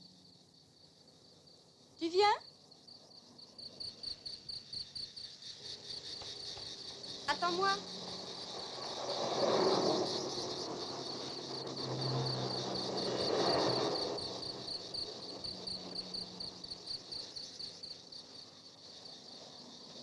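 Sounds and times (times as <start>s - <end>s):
insects chirping: 0.0s - 20.0s
cars passing by: 7.3s - 16.9s.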